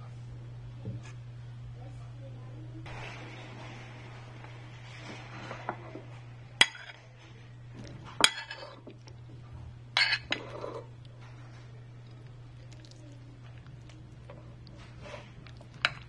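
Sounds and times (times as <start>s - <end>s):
metal spoon clinking ceramic bowl: 8.2s - 8.7s, 10.0s - 10.4s.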